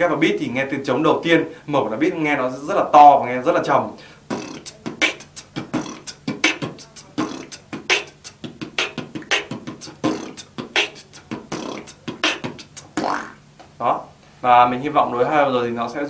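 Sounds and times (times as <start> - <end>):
beatboxing kick and snare: 4.3 - 13.4
buzzing lip bass: 4.3 - 13.5.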